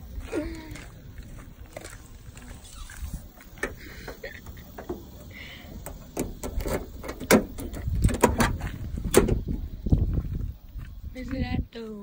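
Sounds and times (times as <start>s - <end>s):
key turning in car door lock: 6.1s - 8.6s.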